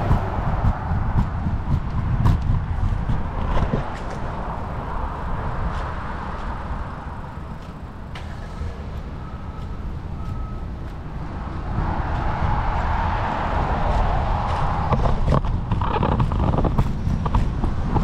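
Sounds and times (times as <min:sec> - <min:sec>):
road traffic: 0:00.0 - 0:18.0
wind rumble on microphone: 0:00.0 - 0:18.0.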